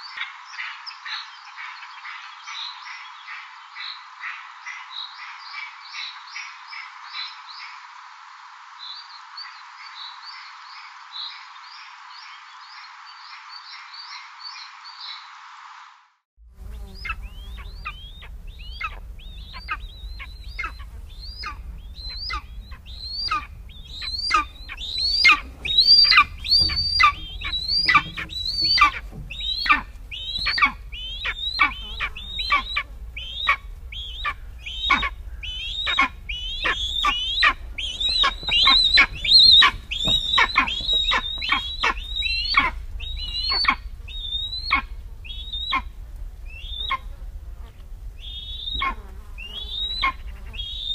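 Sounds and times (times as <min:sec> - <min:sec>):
steady low rumble: 0:16.4 - 0:50.9
eagle calling: 0:16.6 - 0:50.9.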